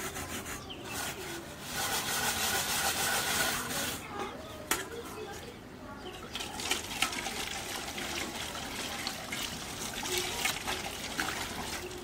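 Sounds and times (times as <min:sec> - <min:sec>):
water trickling into a steel bowl: 0:06.2 - 0:12.0.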